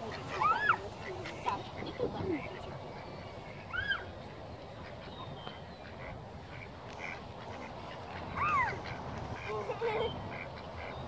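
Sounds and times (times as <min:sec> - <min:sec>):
ducks quacking: 0:00.0 - 0:04.0, 0:04.8 - 0:11.0.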